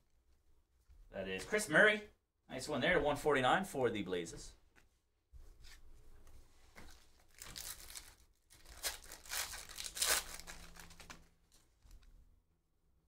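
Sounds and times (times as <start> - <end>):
foil wrapper tearing and crinkling: 7.3 - 11.6.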